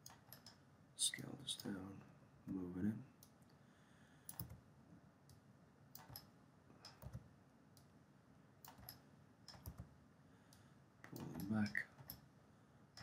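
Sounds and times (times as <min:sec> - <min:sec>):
mouse and keyboard clicks: 0:04.3 - 0:04.6, 0:06.0 - 0:07.2, 0:08.6 - 0:09.9.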